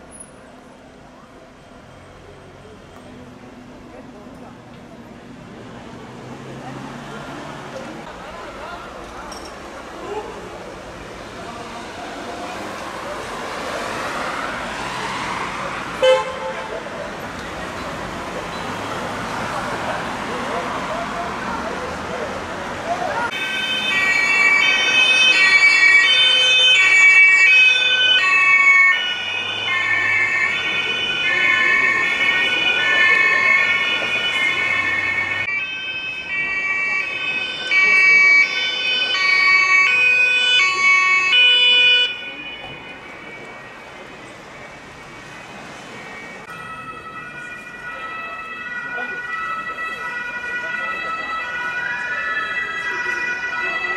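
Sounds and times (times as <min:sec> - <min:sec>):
two-tone emergency sirens: 0:11.7 - 0:21.5, 0:23.1 - 0:53.9.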